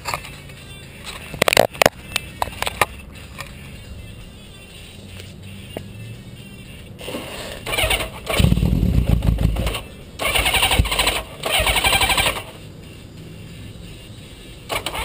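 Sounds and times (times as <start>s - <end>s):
motorcycle engine cranking on starter: 7.6s - 12.5s, 14.7s - 15.0s.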